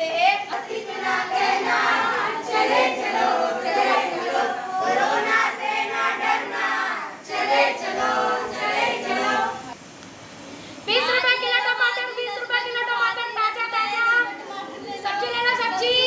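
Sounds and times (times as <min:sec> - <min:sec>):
young voices singing in chorus: 0:00.0 - 0:09.8.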